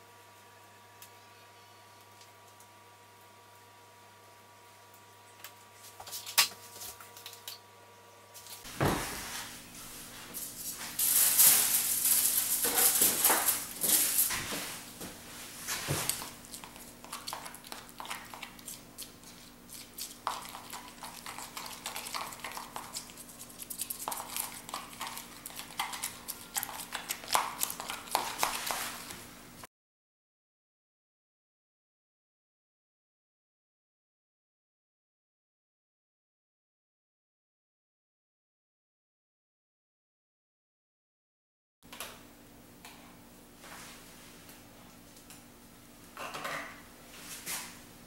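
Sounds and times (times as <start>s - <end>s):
knife scraping plastic bowl: 15.7s - 29.2s.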